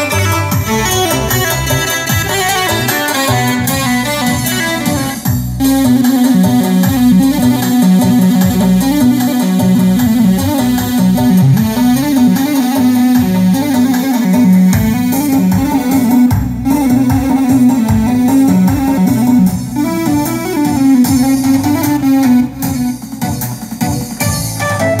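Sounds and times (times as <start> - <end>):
keyboard melody: 0.0 - 25.0.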